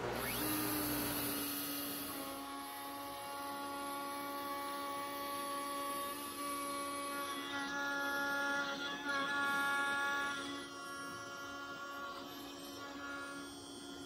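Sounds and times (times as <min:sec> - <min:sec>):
router spindle whining: 0:00.0 - 0:14.0.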